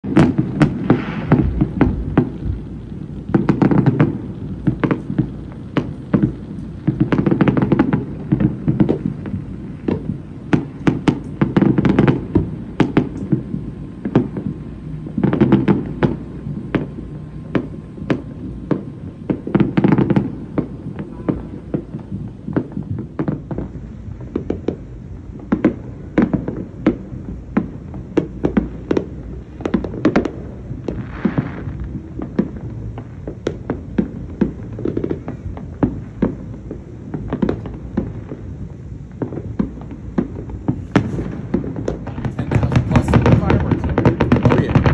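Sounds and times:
fireworks bangs and pops: 0.0s - 44.9s.

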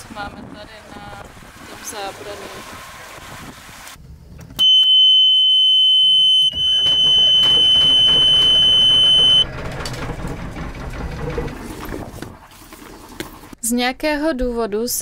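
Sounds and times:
alarm buzzer high tone: 4.6s - 9.4s
engine starter cranking: 6.5s - 12.5s.

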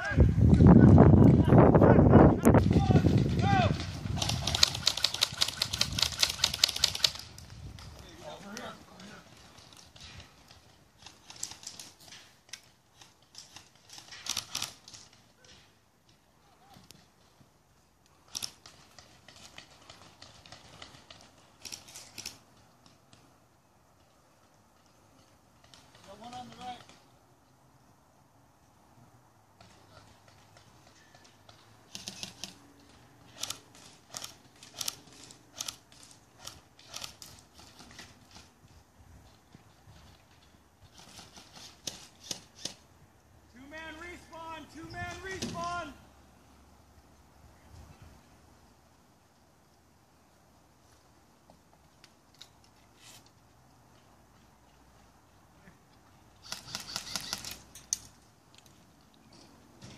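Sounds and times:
airsoft guns firing: 2.6s - 7.2s, 56.4s - 57.7s.

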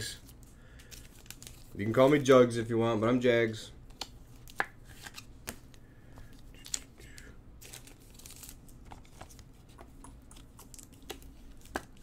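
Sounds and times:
plastic packaging crinkling: 7.6s - 9.5s.

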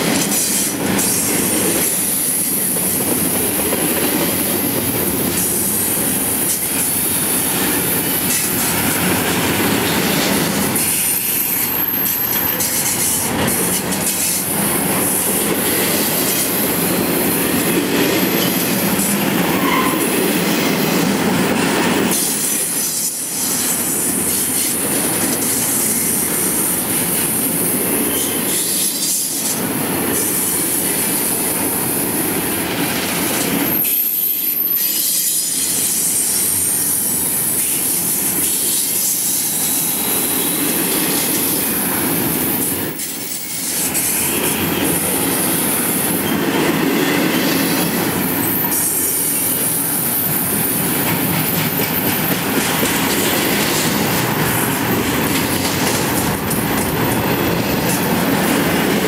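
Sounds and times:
steel wheels on rail: 0.0s - 59.0s
high-pitched wheel squeal: 18.2s - 20.1s, 33.7s - 35.6s.

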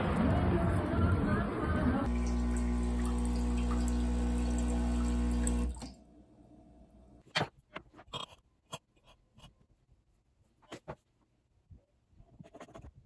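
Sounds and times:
espresso machine pump humming: 2.0s - 5.9s.

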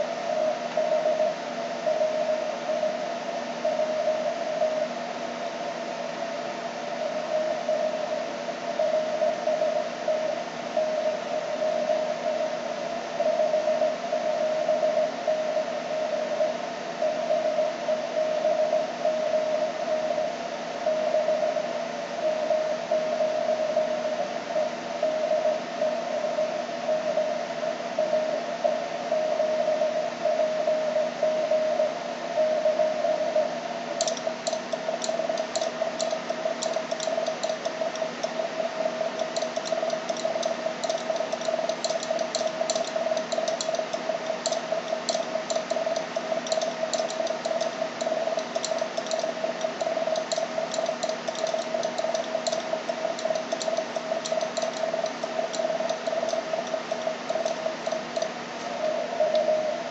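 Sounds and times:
morse code tone: 22.2s - 27.4s, 34.0s - 59.8s
rapid sharp clicks: 34.0s - 58.7s.

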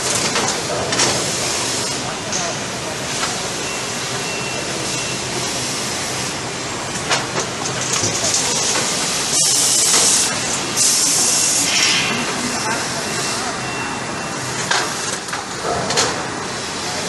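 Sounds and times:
loud hissing bursts: 8.9s - 13.7s.

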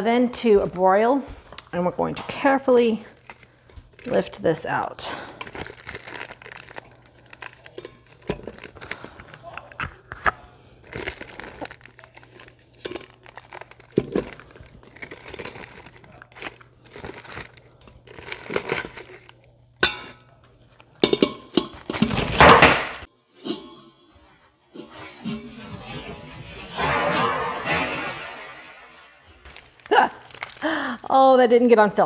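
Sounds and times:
aluminium foil crinkling: 3.0s - 4.5s, 5.2s - 10.0s, 10.8s - 19.5s, 29.4s - 31.0s.

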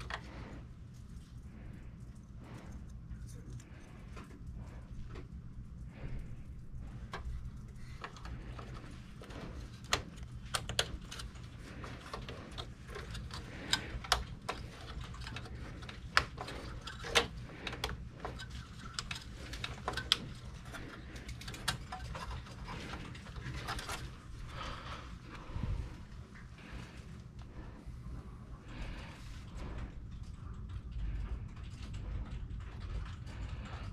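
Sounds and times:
low steady hum: 0.0s - 33.9s
plastic and metal parts clicking: 7.9s - 24.1s.

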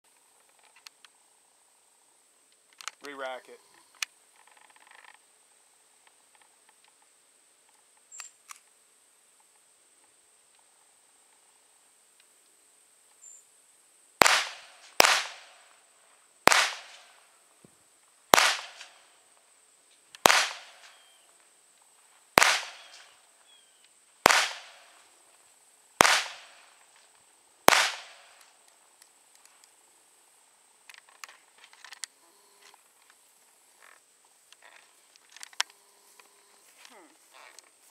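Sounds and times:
pistol shots echoing: 14.2s - 15.6s, 16.5s - 17.1s, 18.3s - 19.0s, 20.2s - 21.0s, 22.4s - 23.1s, 24.2s - 24.9s, 26.0s - 26.6s, 27.7s - 28.4s.

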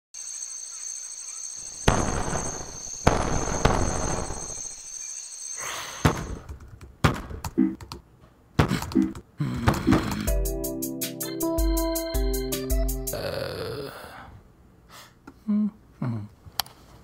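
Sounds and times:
light elevator music: 10.3s - 13.3s.

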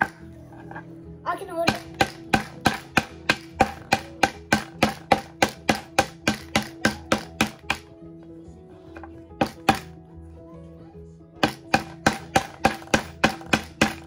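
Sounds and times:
hammer driving nail into wood: 1.7s - 7.9s, 9.0s - 10.0s, 11.4s - 14.0s.

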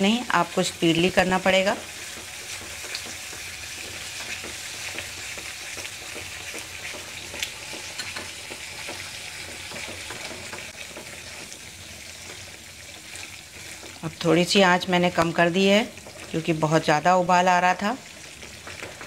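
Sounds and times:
sauce sizzling and bubbling: 0.0s - 19.0s
wooden spatula scraping pan: 1.0s - 14.4s, 15.4s - 16.7s.

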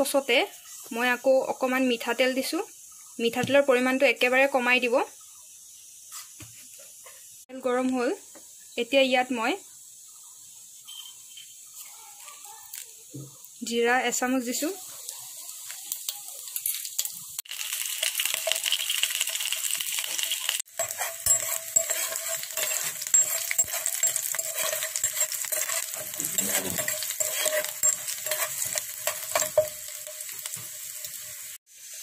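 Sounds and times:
spices sizzling in hot oil: 0.0s - 32.0s
spoon scraping pan: 18.2s - 31.5s.

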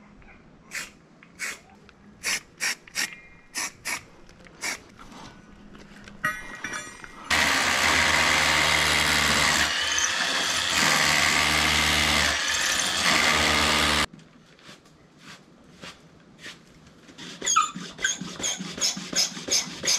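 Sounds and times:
cordless drill boring into stone: 7.3s - 14.1s.

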